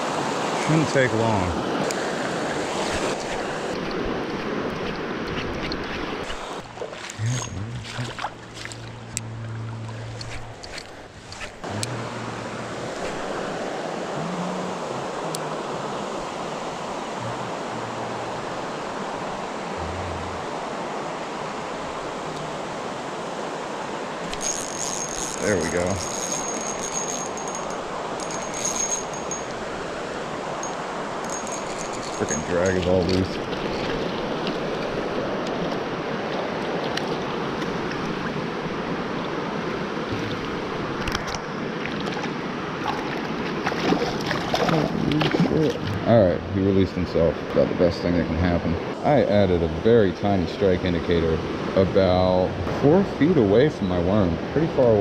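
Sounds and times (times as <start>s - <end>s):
creek water rushing: 0.0s - 55.0s.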